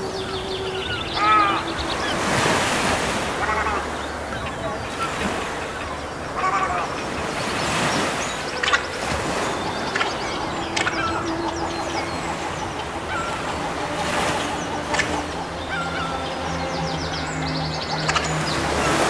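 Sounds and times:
bird calls: 0.0 - 19.0
waves washing over rocks: 0.0 - 19.0
sharp clicks: 18.0 - 18.5.

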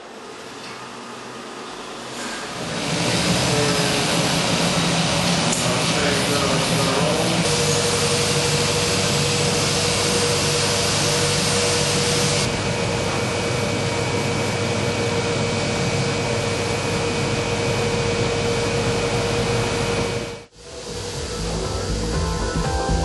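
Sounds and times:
dust extractor humming: 0.0 - 23.0
power sander hiss: 2.0 - 12.6, 20.5 - 22.8.

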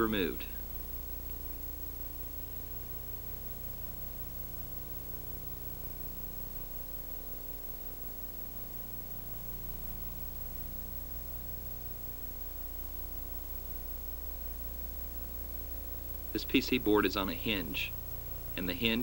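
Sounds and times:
electrical hum: 0.0 - 19.0
tape hiss: 0.0 - 19.0.

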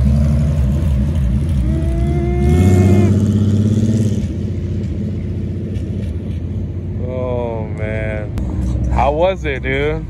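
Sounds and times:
engine revving: 0.0 - 6.4.

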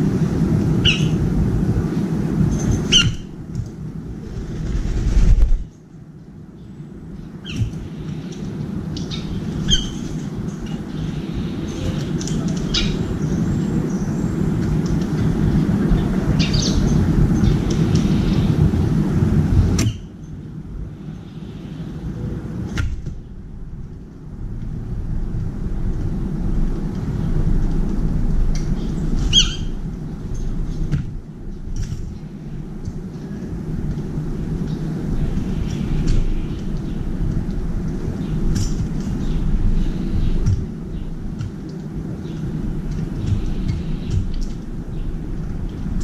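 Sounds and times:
bird calls: 0.8 - 1.2, 2.6 - 3.3, 9.0 - 14.4, 28.7 - 30.9
low rumble: 3.9 - 5.8.

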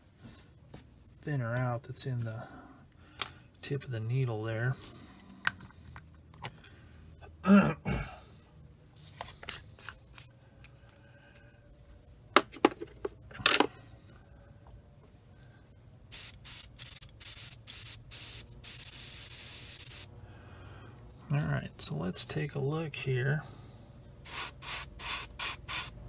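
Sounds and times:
airbrush spray bursts: 16.1 - 20.1, 24.2 - 26.0.

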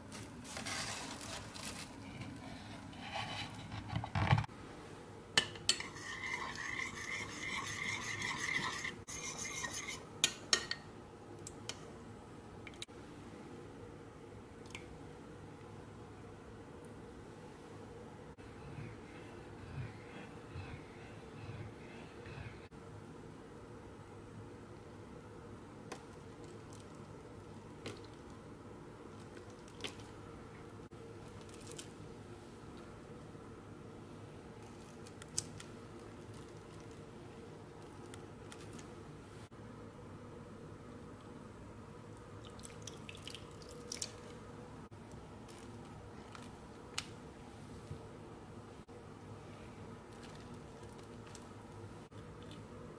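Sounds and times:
steady low hum: 1.4 - 52.9
spoon scraping ceramic dish: 5.7 - 10.4.

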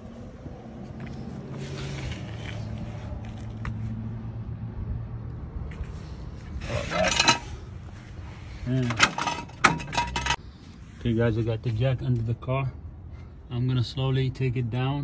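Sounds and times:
vehicle engine humming: 0.0 - 10.8.

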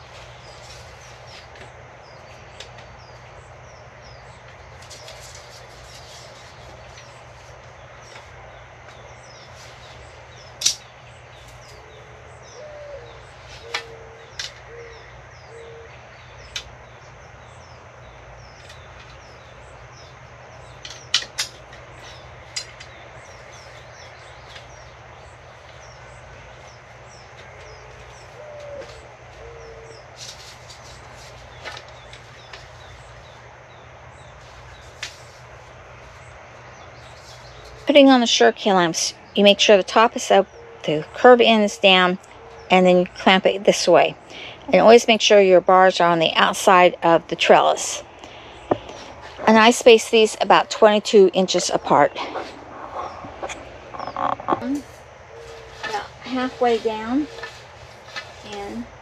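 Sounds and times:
steady low hum: 0.0 - 59.0
dove cooing: 11.7 - 16.0, 27.4 - 30.4, 51.6 - 57.6.

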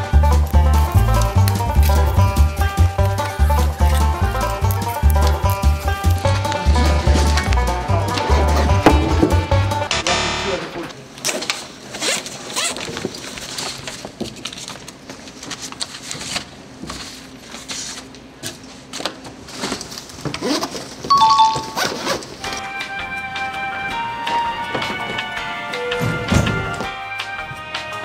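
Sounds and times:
paper shuffling: 0.3 - 8.2, 11.2 - 22.6
zipper: 20.4 - 20.8
two-note ding-dong chime: 21.1 - 21.9.

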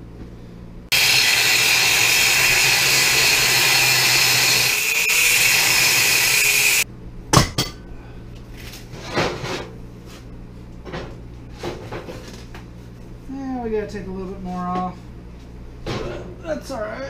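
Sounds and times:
angle grinder cutting steel: 0.9 - 6.8.

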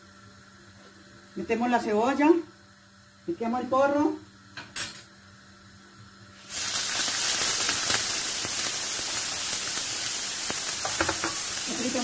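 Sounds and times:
leek sizzling in hot oil: 5.4 - 12.0.

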